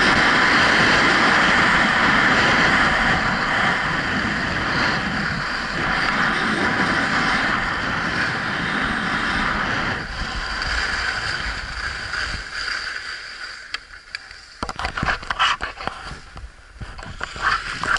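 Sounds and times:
skis sliding over snow: 0.0 - 17.9
sharp scrapes and knocks: 12.1 - 17.9.

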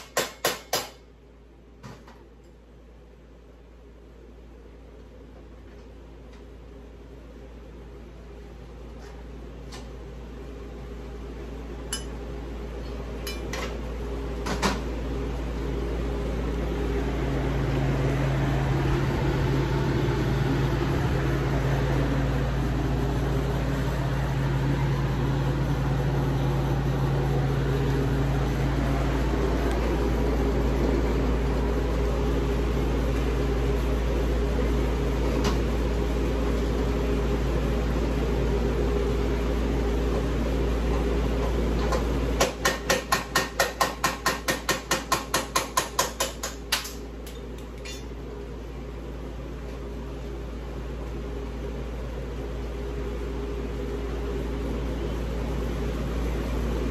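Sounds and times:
machinery humming: 10.2 - 42.4, 48.2 - 56.9.

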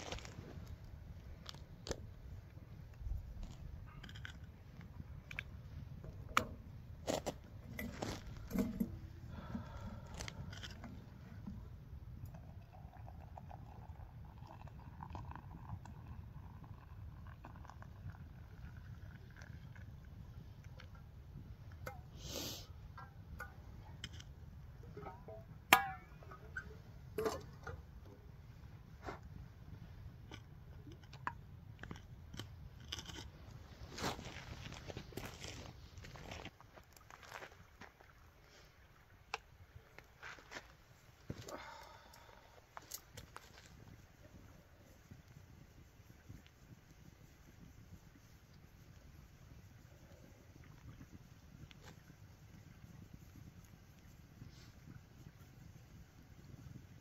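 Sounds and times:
water pouring into cup: 12.3 - 19.9.

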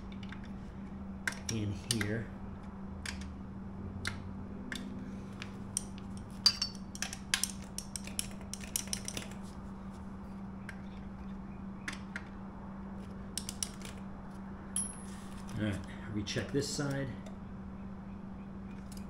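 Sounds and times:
steady low hum: 0.0 - 19.0
metallic tool clicks and clinks: 5.7 - 9.4.

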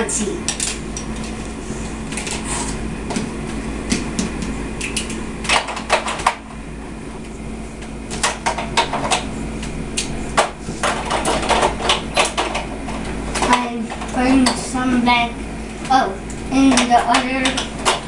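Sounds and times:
low steady hum: 0.0 - 18.0
plastic toys clicking and clattering: 16.7 - 18.0.

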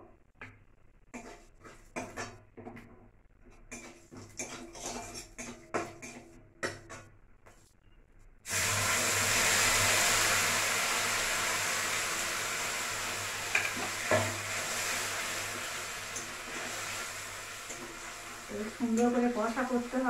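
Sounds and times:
paste sizzling in hot oil: 3.6 - 6.8, 8.5 - 20.0.

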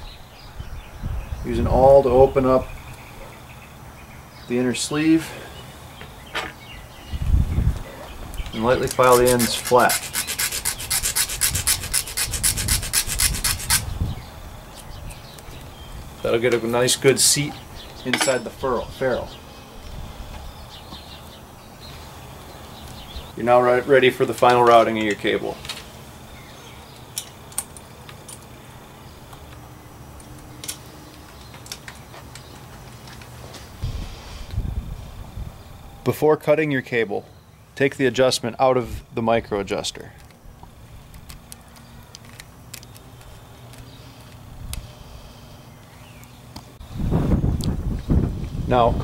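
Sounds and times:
file rasping on cable end: 8.8 - 13.8.

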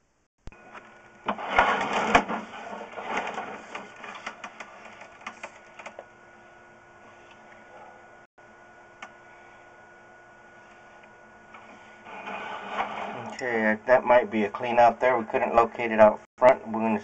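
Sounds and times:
cable rattling and clicking: 0.7 - 6.1
faint electronic hum: 3.1 - 17.0.

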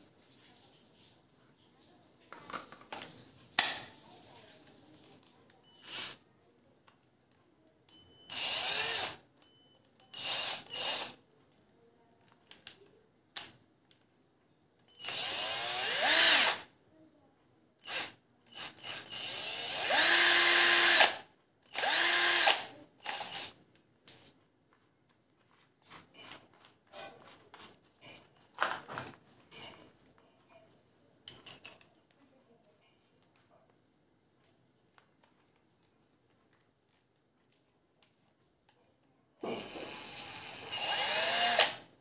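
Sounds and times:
cordless drill motor whining: 5.8 - 6.2, 8.3 - 9.2, 10.1 - 11.2, 15.0 - 16.7, 17.8 - 23.6, 39.4 - 41.8.

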